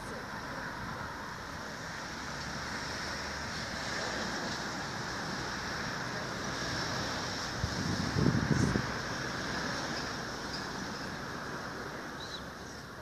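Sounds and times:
distant road traffic: 0.0 - 13.0
wind on microphone: 7.5 - 9.1.

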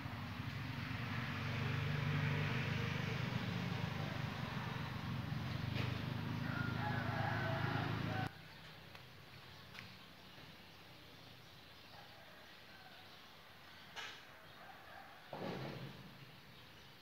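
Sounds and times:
engine running with low hum: 0.0 - 8.8.

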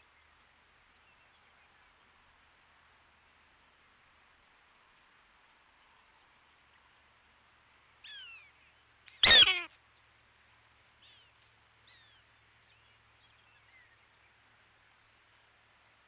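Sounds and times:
prairie dog chirps: 9.2 - 9.7.

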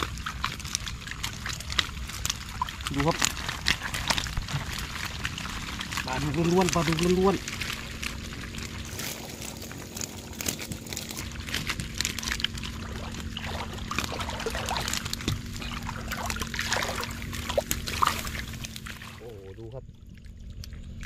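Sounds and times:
small splashes: 0.0 - 21.0
water streaming and dripping: 0.0 - 21.0.

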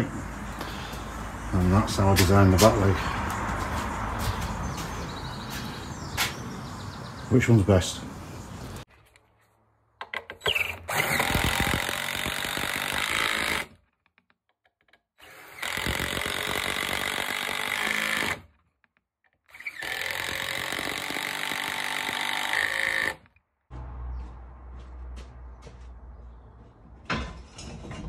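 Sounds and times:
power driver driving screws: 10.0 - 13.8, 14.9 - 18.6, 19.5 - 23.3.

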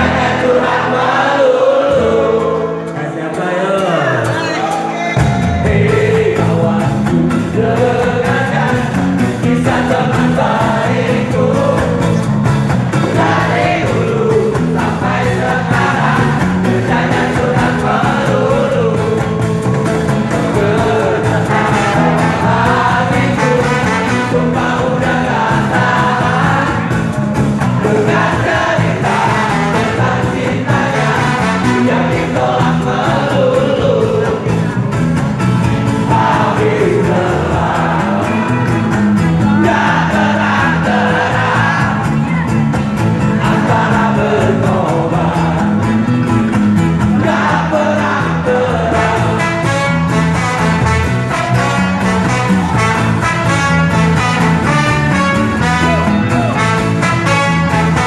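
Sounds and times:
men singing together: 0.0 - 34.8, 35.7 - 42.4, 43.1 - 58.0
strummed acoustic guitars: 0.0 - 58.0
brass horn playing: 21.4 - 24.9, 30.9 - 32.2, 49.0 - 58.0.

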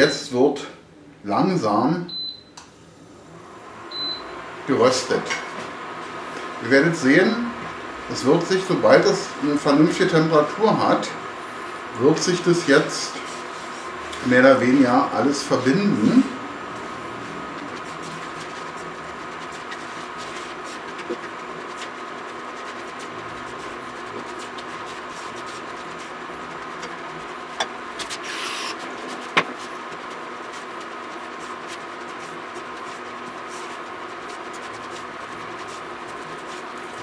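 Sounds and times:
induction hob humming and whining: 2.2 - 37.0
spatula scraping a pan: 17.7 - 37.0.

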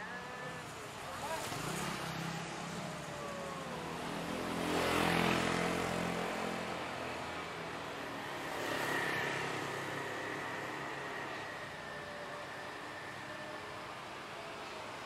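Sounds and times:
traffic noise: 0.0 - 15.0
vehicle passing by: 1.2 - 11.6.

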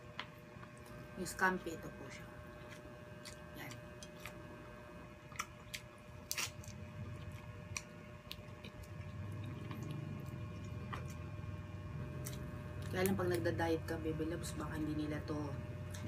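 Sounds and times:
wet chewing and lip smacks: 5.3 - 11.4.

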